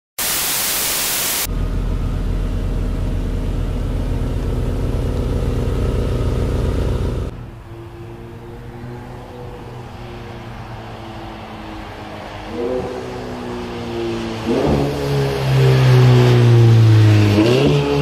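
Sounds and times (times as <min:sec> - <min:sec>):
static hiss: 0:00.2 - 0:01.5
car engine idling: 0:01.5 - 0:07.8.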